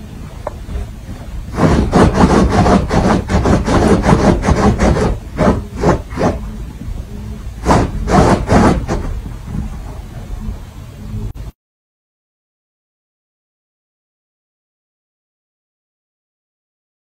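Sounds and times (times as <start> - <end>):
dog scratching at blanket: 1.5 - 6.4, 7.6 - 9.2.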